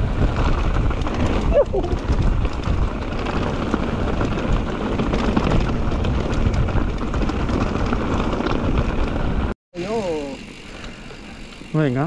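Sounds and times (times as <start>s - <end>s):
wind on microphone: 0.0s - 9.5s
bike rattling down rough trail: 0.0s - 12.0s.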